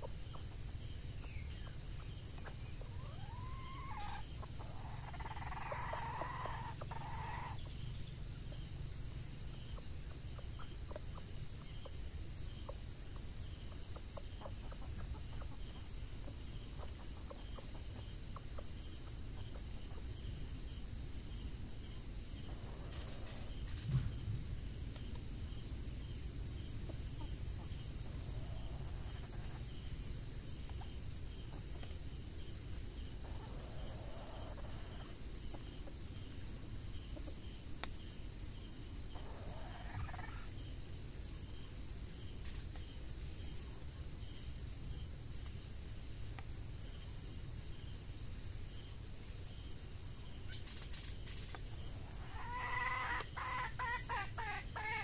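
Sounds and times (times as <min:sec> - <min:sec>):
junglefowl clucking: 0:01.2 - 0:07.8, 0:09.7 - 0:12.0, 0:12.6 - 0:20.1, 0:33.2 - 0:35.6, 0:39.1 - 0:40.5, 0:50.9 - 0:55.0.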